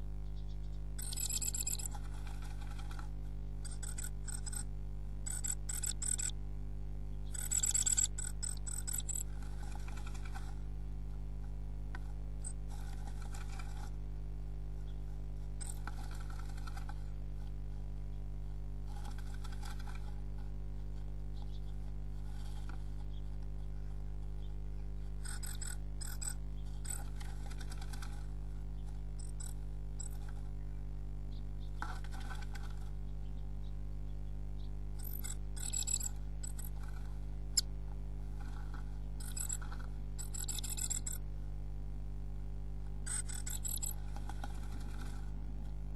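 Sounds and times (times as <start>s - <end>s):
low electrical hum: 0.0s - 45.9s
bird scratching nest material: 1.0s - 6.4s, 7.3s - 10.7s, 12.1s - 14.1s, 15.0s - 17.9s, 18.8s - 21.1s, 25.1s - 30.6s, 31.8s - 33.0s, 35.0s - 41.2s, 43.1s - 45.4s
bird scratching in nest box: 5.3s - 6.3s, 15.6s - 17.1s.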